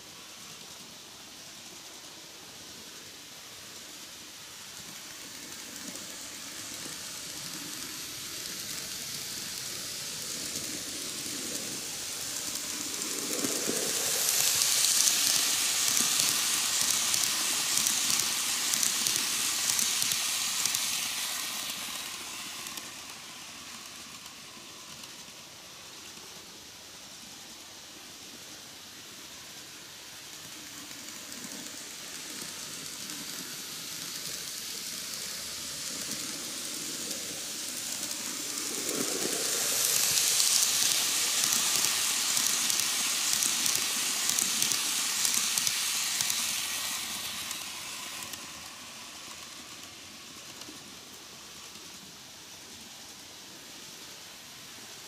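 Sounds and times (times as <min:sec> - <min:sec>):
model train running on track: 0:00.0 - 0:55.0.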